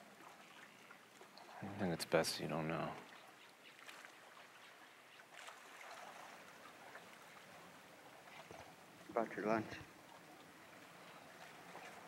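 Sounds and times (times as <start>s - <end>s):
gentle water lapping: 0.0s - 12.0s.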